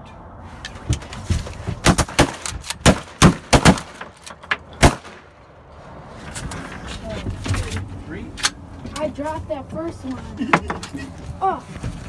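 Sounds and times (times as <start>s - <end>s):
shotguns firing: 1.8s - 4.2s, 4.8s - 5.3s.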